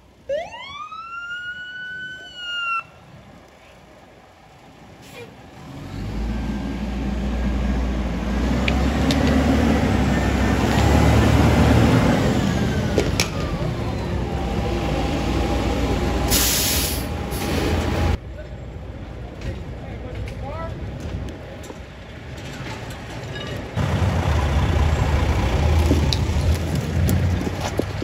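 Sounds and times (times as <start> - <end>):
fire engine diesel engine passing: 3.3 - 19.0, 23.8 - 28.0
air brake hiss: 16.3 - 17.7.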